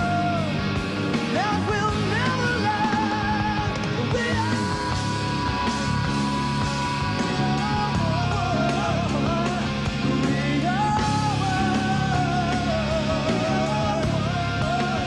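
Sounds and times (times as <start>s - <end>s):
rock band playing live: 0.0s - 15.0s
wavering lead guitar melody: 0.0s - 15.0s.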